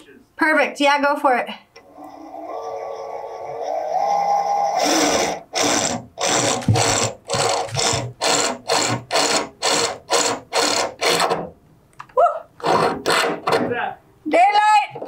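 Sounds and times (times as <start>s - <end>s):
power drill through sheet metal: 1.8s - 11.5s, 12.6s - 13.7s.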